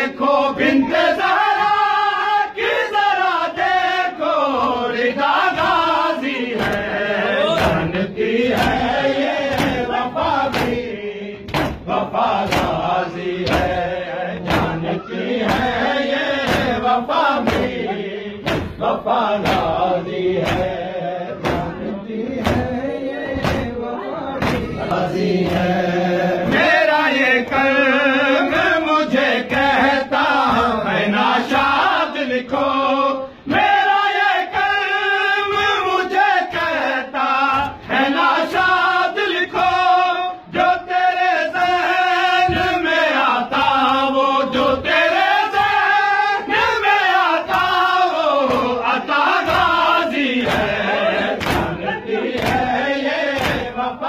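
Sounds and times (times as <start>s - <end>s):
men chanting a lament: 0.0s - 54.0s
hands slapping chests: 4.6s - 20.8s, 21.4s - 23.8s, 24.4s - 25.8s, 42.5s - 53.8s.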